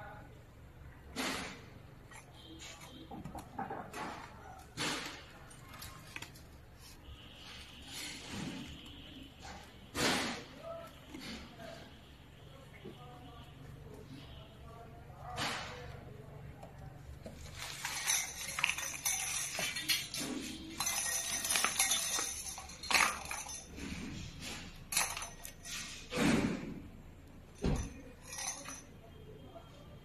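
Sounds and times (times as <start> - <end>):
clinks and knocks on metal: 1.2 - 6.6, 15.3 - 26.7, 27.3 - 29.1
wires rustling: 1.9 - 12.7, 13.4 - 26.2.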